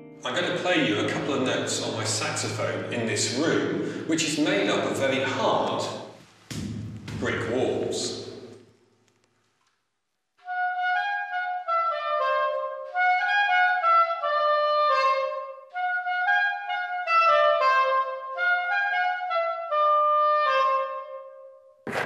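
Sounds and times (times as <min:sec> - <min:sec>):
soprano saxophone melody: 0:10.5 - 0:21.6.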